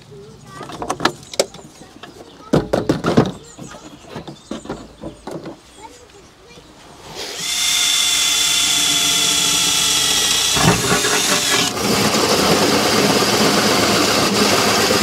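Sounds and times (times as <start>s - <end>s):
drill whining: 7.1s - 15.0s
hole saw grinding through steel: 7.1s - 15.0s.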